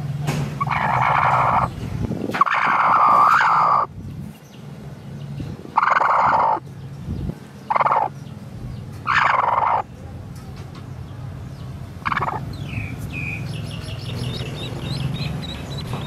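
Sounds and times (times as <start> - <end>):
hen giving short calls: 0.6 - 1.7, 2.4 - 3.9, 5.8 - 6.6, 7.7 - 8.1, 9.1 - 9.9, 12.0 - 12.4.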